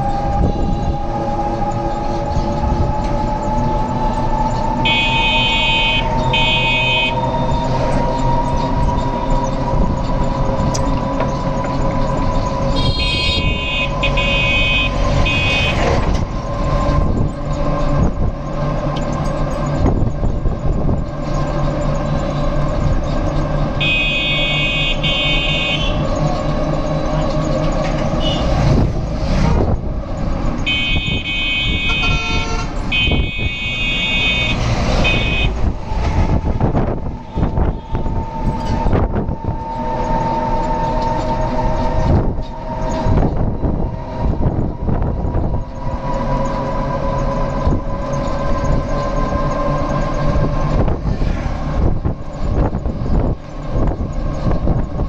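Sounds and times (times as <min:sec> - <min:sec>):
bus engine and road noise: 0:00.0 - 0:55.0
high-pitched horn beeps: 0:04.8 - 0:07.5, 0:12.8 - 0:15.9, 0:23.8 - 0:26.0, 0:30.6 - 0:35.6.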